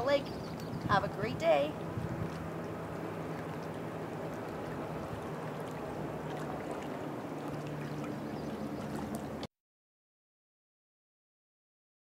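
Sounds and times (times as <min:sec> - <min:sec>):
low even hum: 0:00.0 - 0:09.5.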